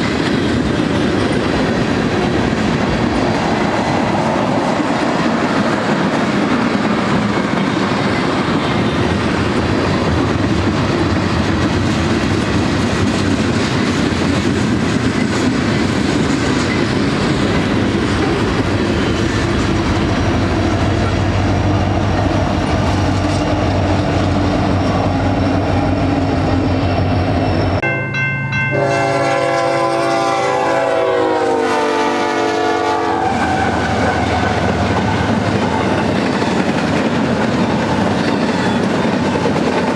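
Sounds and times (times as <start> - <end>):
train wheels clattering on rails: 0.0 - 27.8, 33.6 - 39.9
locomotive engine hum: 16.1 - 38.2
locomotive air horn blast: 28.7 - 34.5.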